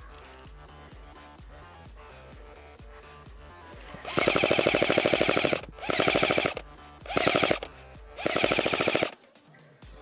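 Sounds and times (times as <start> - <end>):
airsoft gun firing bursts: 4.0 - 9.2.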